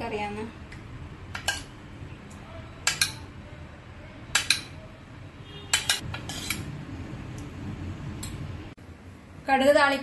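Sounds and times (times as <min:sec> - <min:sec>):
metal spoon clinking and scraping: 0:01.4 - 0:01.7, 0:05.7 - 0:06.7.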